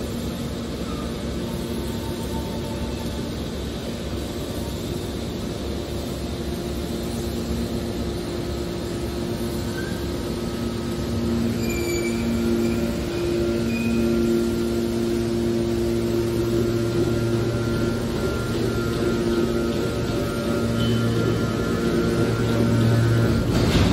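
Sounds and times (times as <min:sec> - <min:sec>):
baler machine hum: 0:00.0 - 0:23.9
faint short squeaks: 0:09.6 - 0:10.1, 0:11.5 - 0:14.2.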